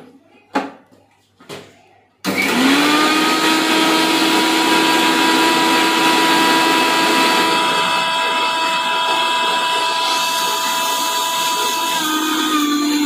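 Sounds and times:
loud grinding noise: 2.3 - 13.0
mixer grinder motor whine: 2.3 - 13.0.

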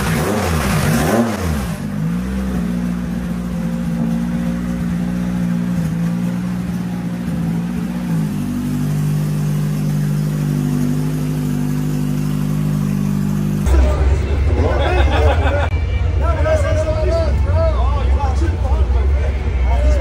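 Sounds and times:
car engine at steady revs: 0.0 - 14.5.

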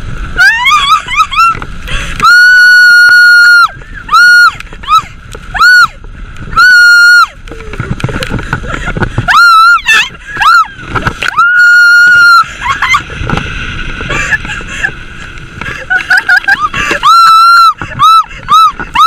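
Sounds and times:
rushing water: 0.0 - 19.0
wind noise: 0.0 - 19.0
people screaming: 0.4 - 7.4, 9.2 - 13.0, 16.0 - 19.0.

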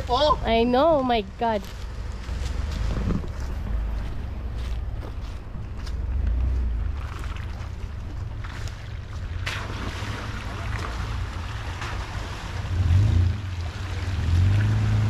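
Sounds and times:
truck engine rumbling: 0.0 - 15.0
water sloshing around tyres: 6.4 - 15.0.

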